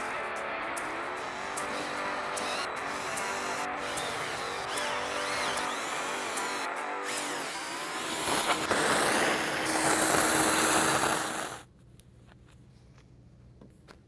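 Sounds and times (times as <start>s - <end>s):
shop vacuum whining: 0.8s - 11.6s.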